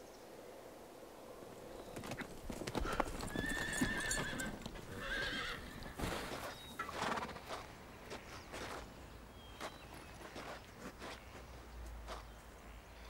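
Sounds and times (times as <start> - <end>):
hooves clopping: 1.8 - 8.9
horse whinnying: 2.7 - 6.1.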